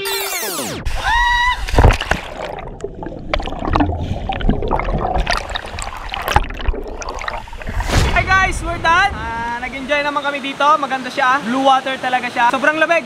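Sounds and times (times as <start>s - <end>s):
person whooping: 0.9s - 1.8s
underwater gurgling and bubbling: 1.6s - 10.0s
loud splash: 1.6s - 10.5s.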